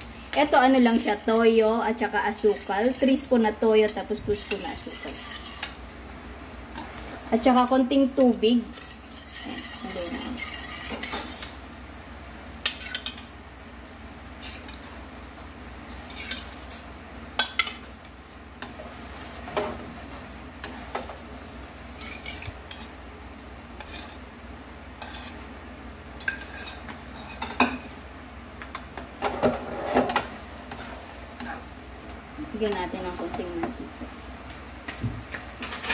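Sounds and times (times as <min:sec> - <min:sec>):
low steady hum: 0:00.0 - 0:35.9
utensil scraping a wok: 0:02.0 - 0:05.9, 0:06.8 - 0:11.6, 0:12.6 - 0:13.2, 0:14.4 - 0:14.9, 0:15.9 - 0:18.0, 0:18.6 - 0:23.0, 0:23.8 - 0:24.3, 0:25.0 - 0:25.4, 0:26.2 - 0:27.6, 0:29.2 - 0:31.7.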